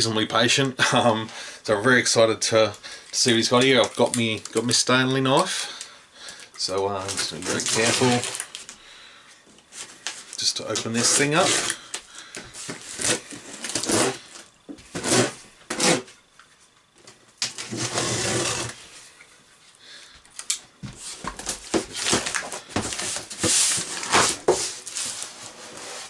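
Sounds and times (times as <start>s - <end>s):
cardboard flaps and packing rustling: 6.9s - 8.7s, 20.8s - 26.0s
utility knife slicing packing tape: 12.9s - 14.2s, 14.9s - 16.1s.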